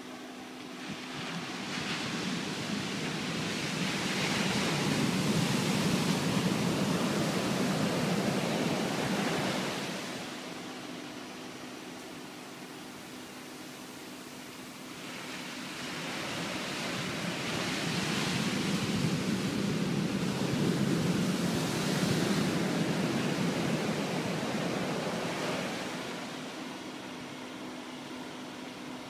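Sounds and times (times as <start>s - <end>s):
waves breaking on sand: 0.8s - 11.0s, 14.3s - 26.9s.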